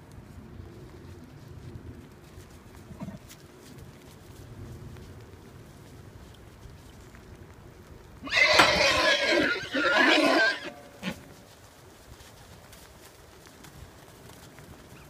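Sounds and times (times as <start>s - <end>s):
horse whinnying: 8.2s - 11.3s.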